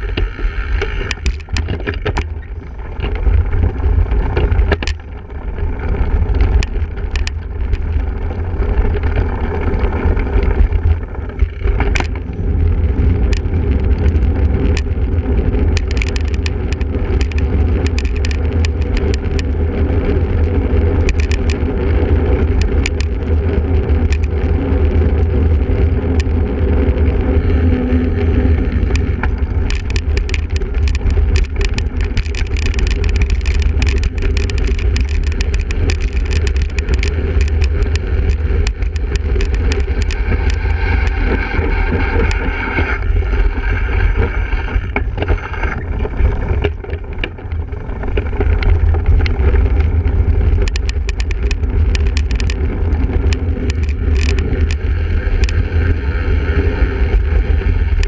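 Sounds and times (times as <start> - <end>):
bike rumbling over rough ground: 0.0 - 58.0
rattling clicks: 0.1 - 5.2, 6.3 - 8.0, 10.4 - 12.4, 15.7 - 19.6, 28.8 - 40.7, 50.5 - 54.8.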